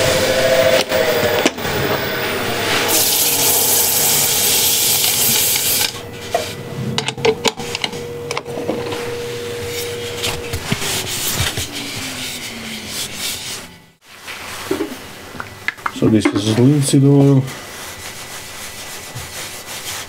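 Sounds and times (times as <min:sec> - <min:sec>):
wood lathe humming: 0:00.0 - 0:14.0
sandpaper hissing on spinning wood: 0:02.6 - 0:06.0, 0:09.7 - 0:13.8, 0:17.6 - 0:20.0.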